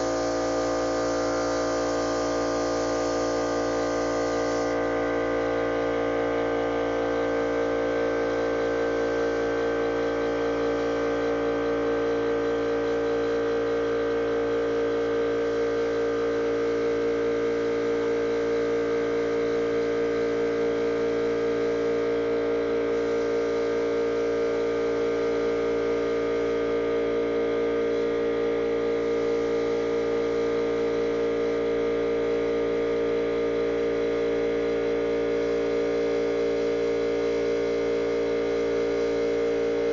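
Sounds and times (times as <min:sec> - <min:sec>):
machinery humming: 0:00.0 - 0:05.0.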